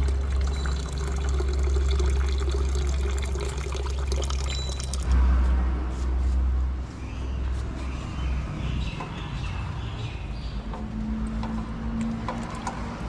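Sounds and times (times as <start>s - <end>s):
coolant splashing into a bucket: 0.0s - 5.1s, 12.0s - 13.0s.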